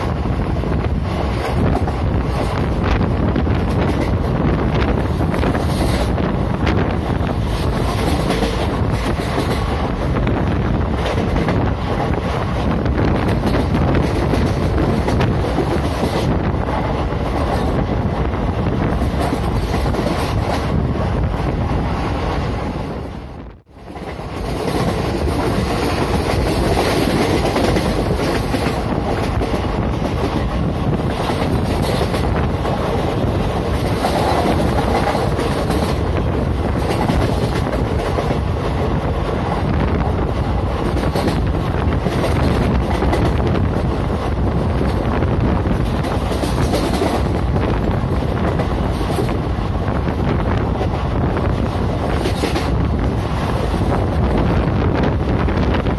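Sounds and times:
rushing air: 0.0s - 55.9s
train wheels rumbling on rails: 0.0s - 55.9s.

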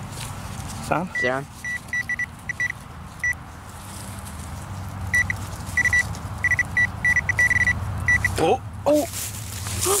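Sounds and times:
probe in loose soil: 0.0s - 10.0s
pinpointer beeping: 1.1s - 3.4s, 5.1s - 8.4s.

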